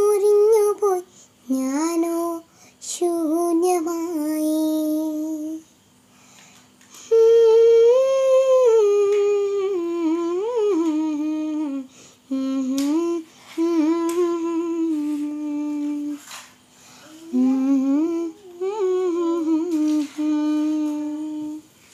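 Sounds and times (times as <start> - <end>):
girl humming a melody: 0.0 - 5.7, 7.0 - 16.2, 16.8 - 21.7.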